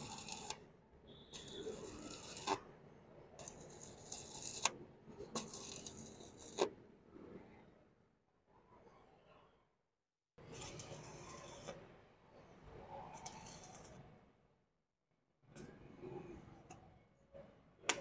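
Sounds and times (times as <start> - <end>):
welding arc crackling: 0.0 - 0.7, 1.3 - 2.7, 3.4 - 6.7, 13.2 - 14.0.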